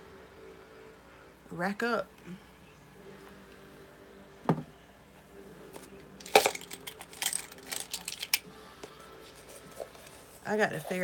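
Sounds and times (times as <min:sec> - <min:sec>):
small hard objects clattering: 0:06.2 - 0:08.4.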